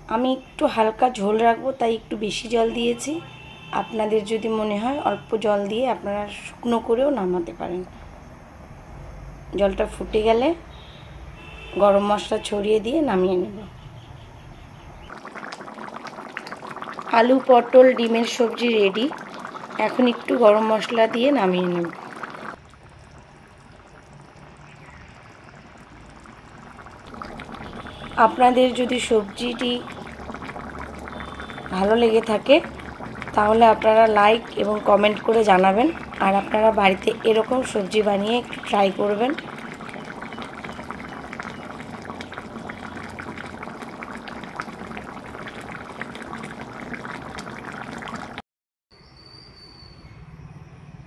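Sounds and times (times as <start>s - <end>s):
gravy bubbling: 14.9s - 48.4s.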